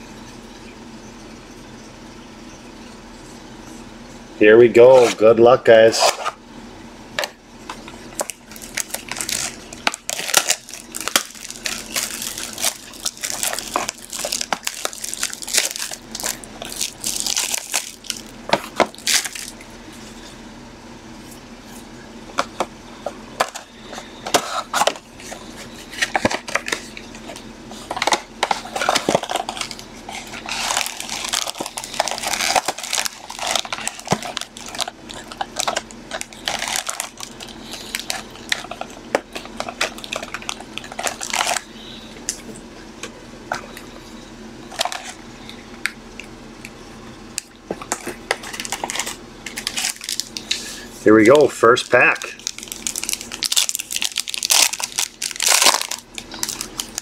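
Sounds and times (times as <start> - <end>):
cardboard and foil packs rustling: 7.7 - 20.4, 21.2 - 45.7, 47.4 - 57.0
plastic shrink wrap crinkling: 7.8 - 20.2, 23.4 - 42.5, 47.4 - 57.0.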